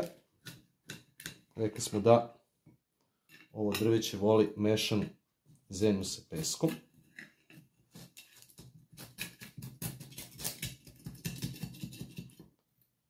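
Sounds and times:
blade scraping inside pot: 0:07.1 - 0:12.4.

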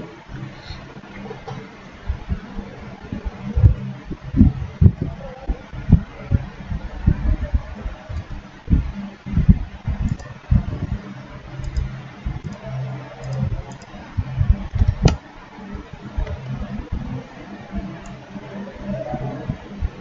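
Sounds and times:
low thumps and bumps: 0:01.1 - 0:18.2
computer mouse clicks: 0:09.9 - 0:10.4, 0:11.6 - 0:14.0, 0:14.7 - 0:15.2, 0:17.8 - 0:18.2.

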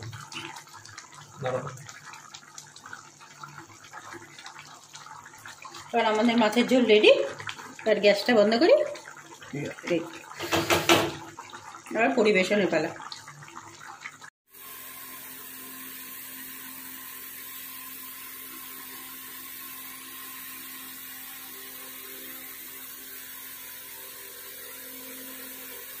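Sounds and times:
small motor whirring hum: 0:14.5 - 0:26.0.

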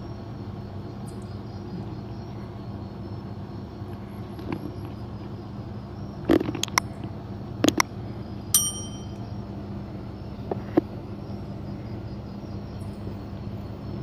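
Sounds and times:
low background rumble: 0:00.0 - 0:14.0
bell-like ding: 0:08.6 - 0:09.2.

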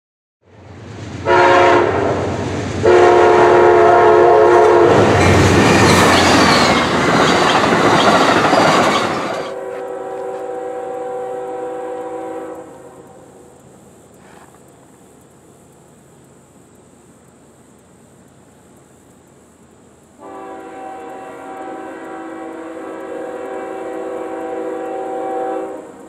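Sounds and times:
train rushing past: 0:00.4 - 0:14.2, 0:20.2 - 0:26.0
diesel locomotive horn: 0:01.2 - 0:06.8, 0:09.0 - 0:13.3, 0:20.2 - 0:26.0.

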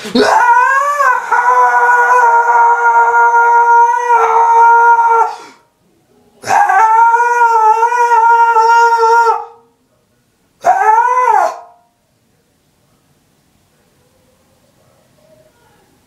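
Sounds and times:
man screaming: 0:00.0 - 0:05.6.

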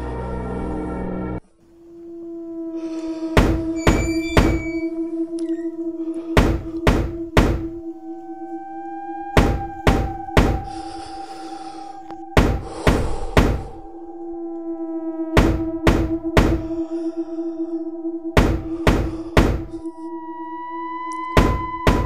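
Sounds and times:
eerie background music drone: 0:00.0 - 0:22.0
knocking on a door: 0:06.4 - 0:07.7, 0:09.4 - 0:10.6.

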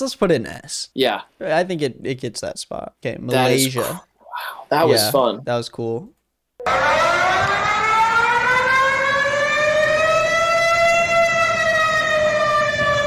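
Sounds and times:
emergency alert siren: 0:06.6 - 0:13.0.

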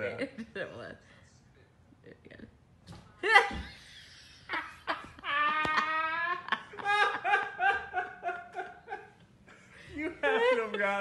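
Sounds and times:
person laughing: 0:03.2 - 0:09.2.

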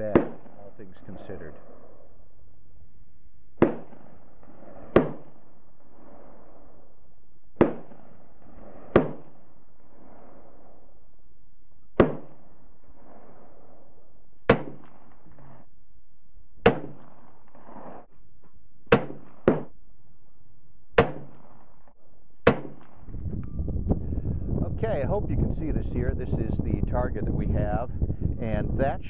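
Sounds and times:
sharp gunshots with echo: 0:00.0 - 0:02.2, 0:03.6 - 0:06.9, 0:07.5 - 0:11.0, 0:11.9 - 0:15.7, 0:16.6 - 0:18.1, 0:18.9 - 0:19.8, 0:21.0 - 0:23.1.

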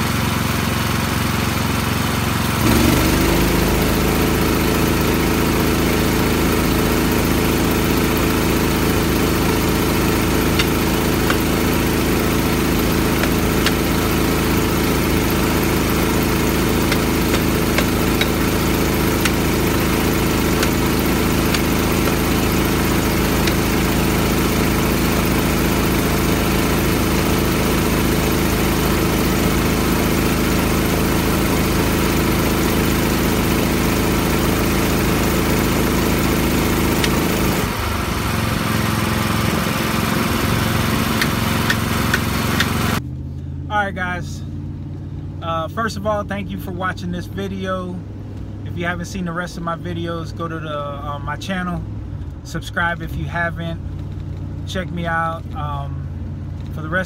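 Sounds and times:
engine idling: 0:00.0 - 0:57.0
tire iron tapping wheel rim: 0:08.5 - 0:24.3, 0:41.0 - 0:42.8.

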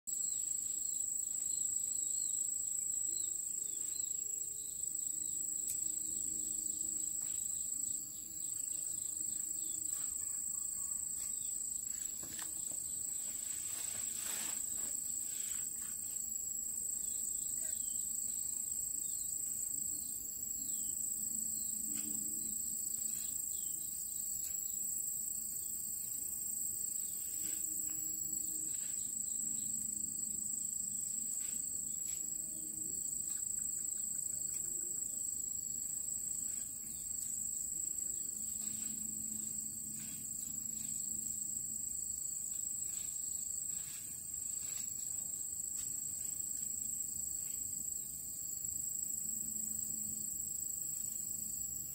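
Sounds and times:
crickets trilling: 0:00.1 - 0:51.9.

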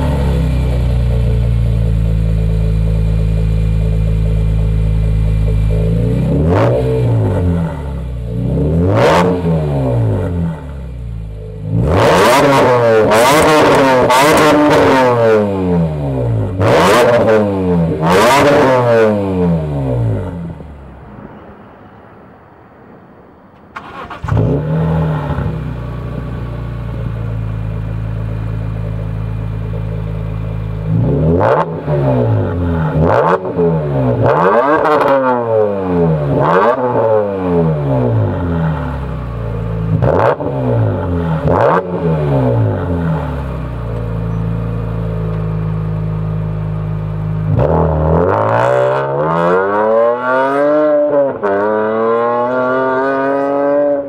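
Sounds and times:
car engine idling and revving: 0:00.0 - 0:54.0.

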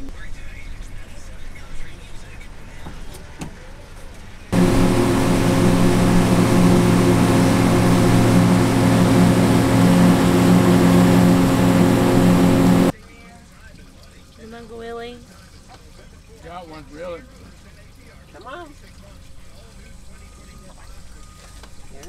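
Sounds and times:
outboard motor running: 0:04.6 - 0:12.9.

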